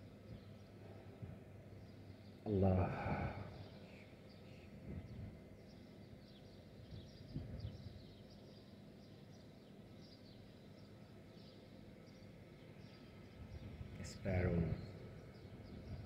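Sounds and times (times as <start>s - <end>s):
sparrows chirping: 0.0s - 16.0s.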